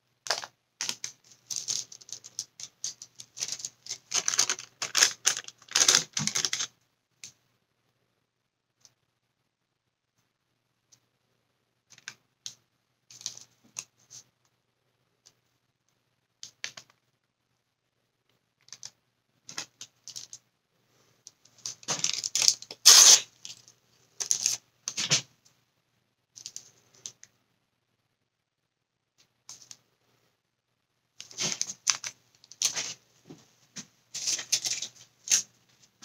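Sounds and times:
plastic sheet crinkling: 0.2s - 6.7s, 21.5s - 25.2s, 31.2s - 33.0s, 34.1s - 35.5s.

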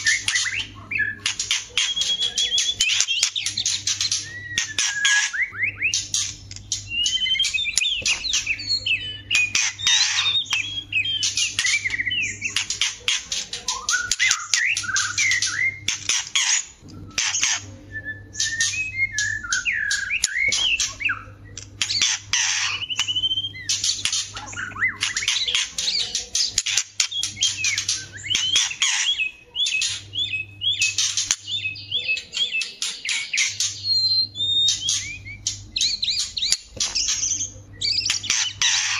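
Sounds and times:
birds singing chattering and whistling: 0.0s - 38.9s.

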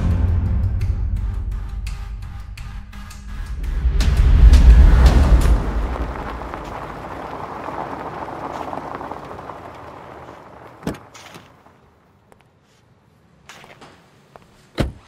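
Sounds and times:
rushing noise: 3.3s - 12.1s.

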